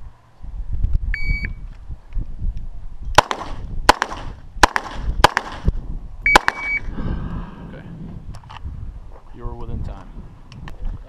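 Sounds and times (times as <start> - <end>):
shot timer beep: 1.2 - 1.6, 6.3 - 6.9
pistol shots with echo: 3.2 - 5.7, 6.3 - 6.8.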